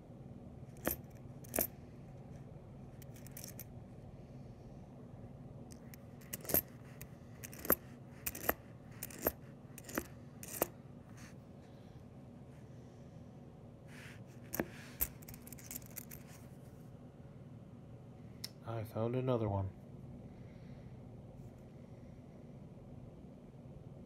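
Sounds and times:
soft shuffle of coins: 0.7 - 1.8, 2.9 - 3.7, 5.7 - 11.4, 13.9 - 16.8
coins clinking: 0.8 - 1.7, 3.0 - 3.6, 5.8 - 6.8, 7.4 - 10.7, 14.5 - 16.4.

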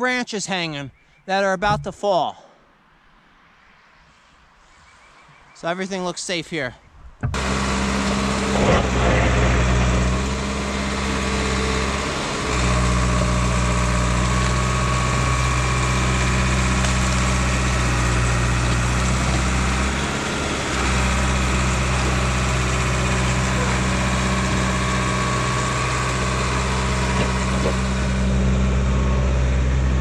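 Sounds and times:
diesel engine running: 7.3 - 30.0.

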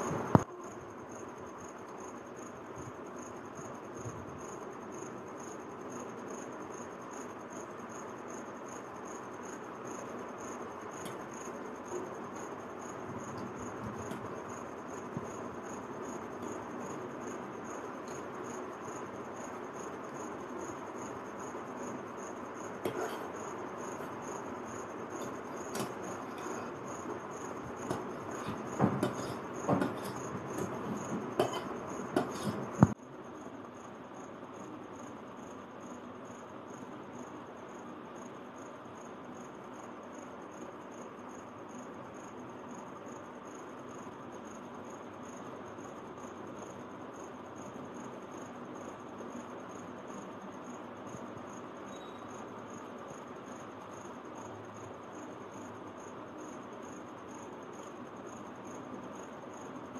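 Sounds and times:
fork scraping on steel plate: 22.8 - 23.3, 27.8 - 32.8.

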